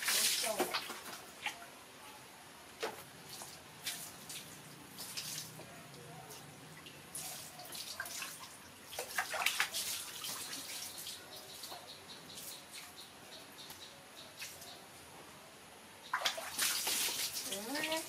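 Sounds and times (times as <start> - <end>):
water splashing in plastic tub: 0.0 - 1.6, 7.1 - 11.2, 16.1 - 18.0.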